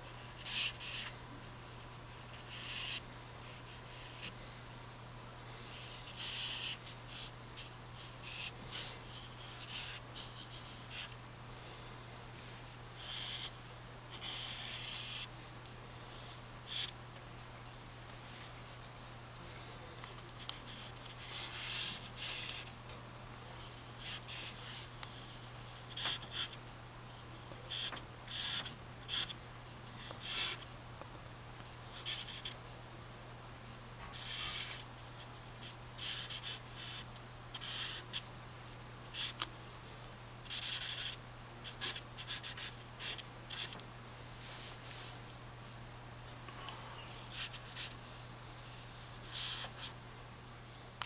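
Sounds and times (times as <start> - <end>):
steady low hum: 0.0 - 51.0
charcoal scratching on paper: 14.1 - 15.3.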